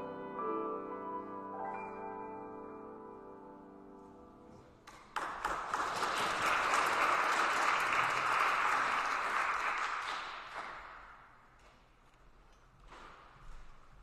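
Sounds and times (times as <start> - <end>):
congregation applauding: 4.8 - 11.4.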